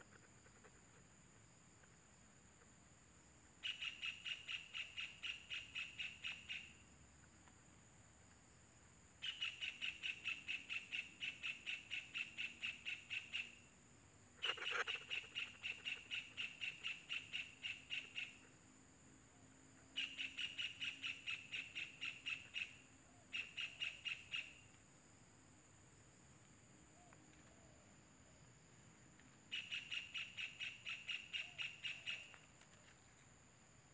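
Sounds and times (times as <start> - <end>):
high insect whine: 14.4 - 33.9.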